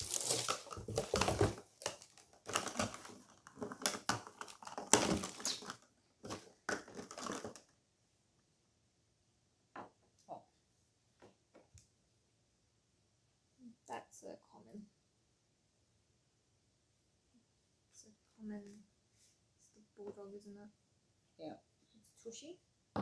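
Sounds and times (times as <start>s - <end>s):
plastic packaging crinkling: 0.0s - 7.7s.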